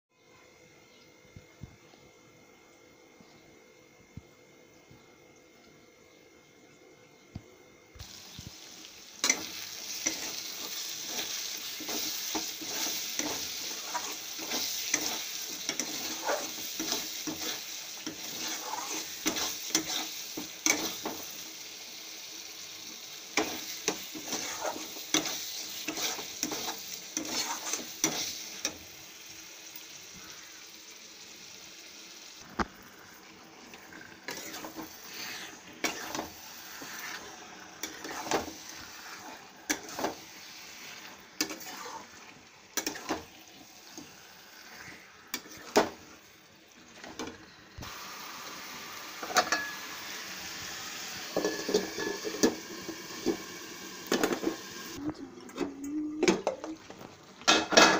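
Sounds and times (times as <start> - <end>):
paste sizzling in hot oil: 8.0 - 55.0
utensil scraping a wok: 9.2 - 21.3, 23.4 - 28.8, 34.0 - 46.0, 51.3 - 53.4.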